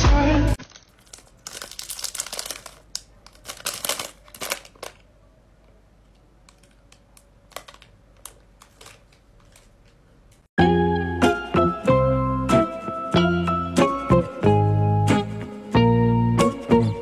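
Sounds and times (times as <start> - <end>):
plastic wrapper crinkling: 0.6 - 5.2, 6.0 - 10.5.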